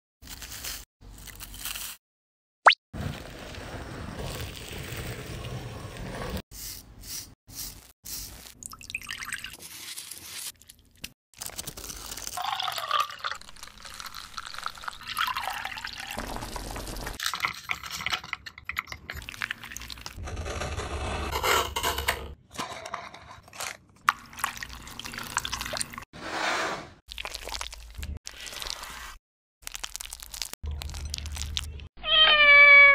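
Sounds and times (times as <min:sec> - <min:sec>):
batter pouring and dripping: 0:08.2 - 0:17.4, 0:24.0 - 0:26.0, 0:27.1 - 0:31.7.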